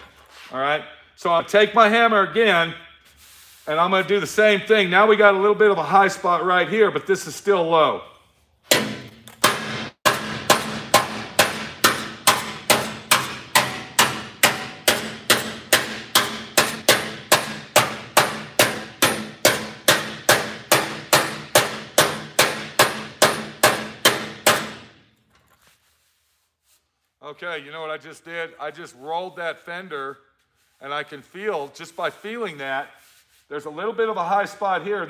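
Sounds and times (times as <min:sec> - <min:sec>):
metal tool striking sheet metal: 0:08.6 - 0:25.1.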